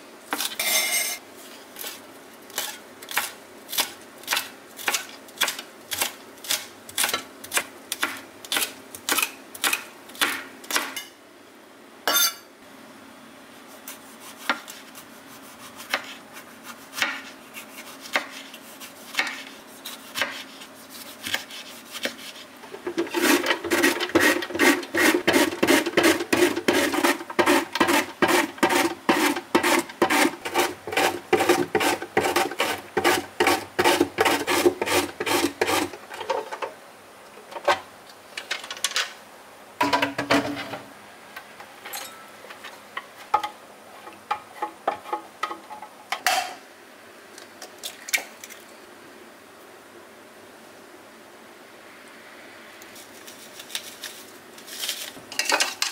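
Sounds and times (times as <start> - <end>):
knife slicing tomato: 13.7 - 22.5, 23.1 - 36.0
vegetable scraping on grater: 13.8 - 36.0
knife chopping on wooden board: 19.1 - 19.4.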